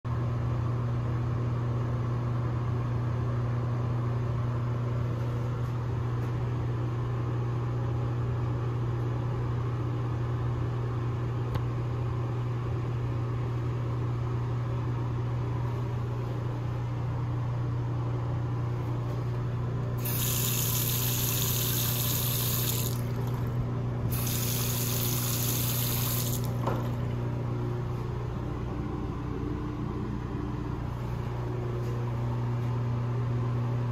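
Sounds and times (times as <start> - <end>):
steady low hum: 0.1 - 33.9
faucet water hissing into sink: 20.0 - 23.5, 24.1 - 26.6.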